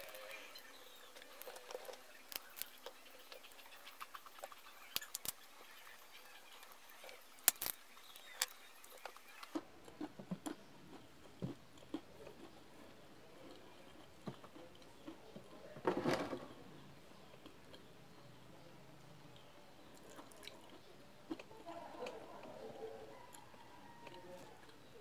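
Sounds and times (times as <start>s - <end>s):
soft chewing: 0.0s - 15.8s, 16.8s - 25.0s
peanut shells cracking: 1.1s - 12.6s.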